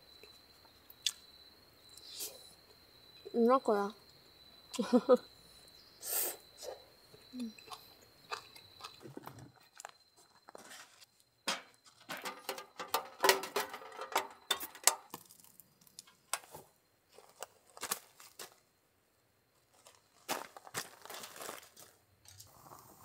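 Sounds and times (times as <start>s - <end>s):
firewood knocking and clattering: 11.5s - 16.5s.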